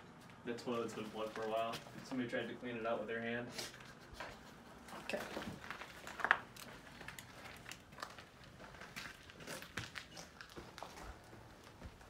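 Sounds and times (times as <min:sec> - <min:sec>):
footsteps crunching over debris: 0:00.6 - 0:02.2, 0:05.0 - 0:12.0
small clicks and crackles: 0:05.1 - 0:11.1.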